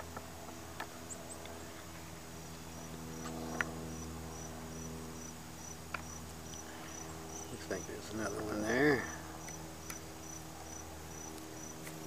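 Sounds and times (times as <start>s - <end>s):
steady low hum: 0.0s - 12.0s
cricket chirping: 3.9s - 11.8s.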